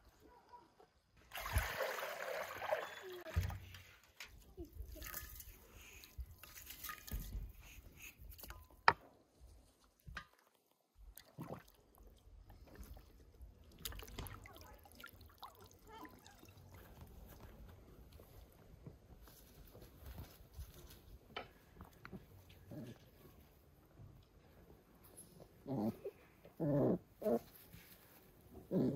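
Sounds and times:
water dripping and splashing: 0:01.2 - 0:04.3, 0:09.8 - 0:17.4.

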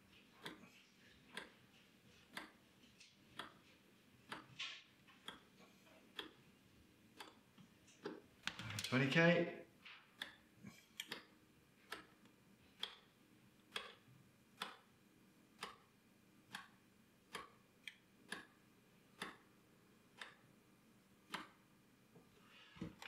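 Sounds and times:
rotary switch clicking: 0:07.2 - 0:07.4, 0:11.0 - 0:11.3, 0:13.7 - 0:14.0, 0:14.6 - 0:14.8, 0:21.3 - 0:21.6.

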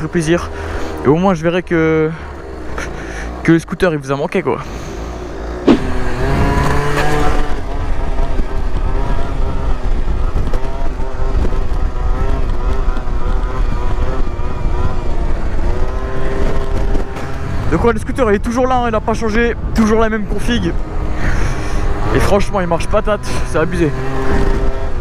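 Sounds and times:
low wind rumble: 0:00.0 - 0:25.0
scooter engine revving: 0:02.1 - 0:03.4, 0:04.6 - 0:17.8, 0:20.8 - 0:25.0.

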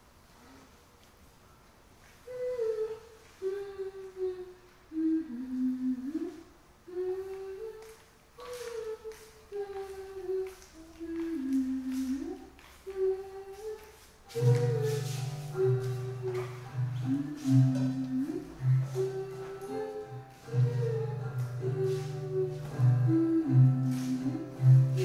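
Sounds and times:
person humming a melody: 0:02.2 - 0:25.0.

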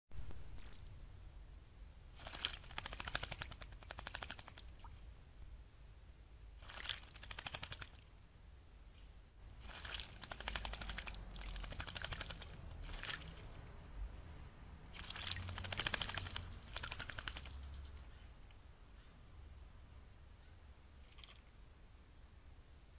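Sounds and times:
bird splashing wings in water: 0:02.2 - 0:04.9, 0:06.6 - 0:08.1, 0:09.6 - 0:13.6, 0:14.9 - 0:17.7.

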